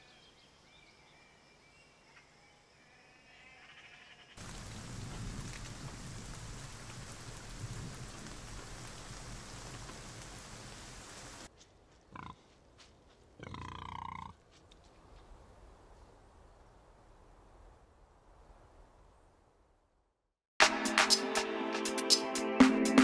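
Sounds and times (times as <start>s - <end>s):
steady rain falling: 4.4s - 11.5s
pig calling: 13.4s - 14.4s.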